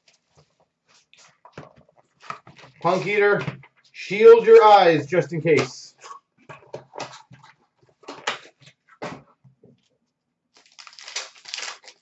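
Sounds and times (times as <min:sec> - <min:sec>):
card pack wrappers crinkling: 0:10.5 - 0:12.0.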